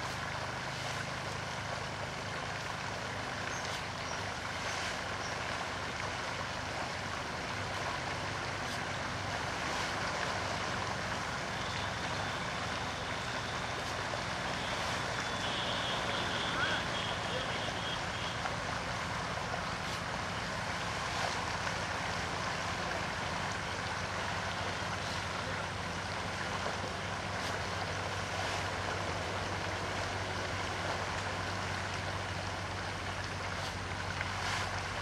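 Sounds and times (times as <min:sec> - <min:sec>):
outdoor background noise: 0:00.0 - 0:35.0
sickle cutting grass: 0:08.6 - 0:10.1, 0:19.8 - 0:20.1, 0:27.3 - 0:27.7, 0:33.6 - 0:34.9.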